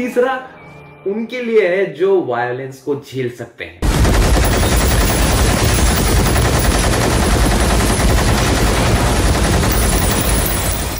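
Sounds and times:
machine gun firing: 3.8 - 10.9.

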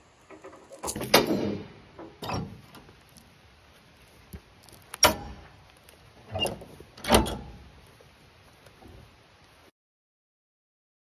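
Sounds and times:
chain clanking and rattling: 0.3 - 3.2.

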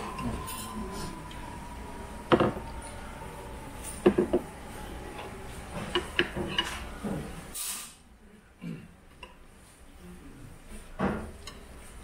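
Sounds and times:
dishes and chopsticks clinking: 5.7 - 7.2.

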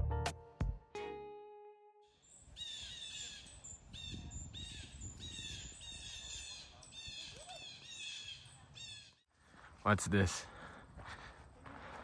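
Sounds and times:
bird calling: 2.2 - 9.2
low wind rumble: 2.7 - 7.2.

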